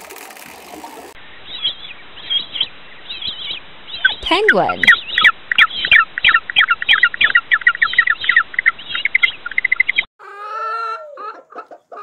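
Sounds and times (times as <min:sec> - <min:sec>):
rapid high bird chirps: 0:01.4 - 0:10.1
chickens clucking: 0:04.5 - 0:12.0.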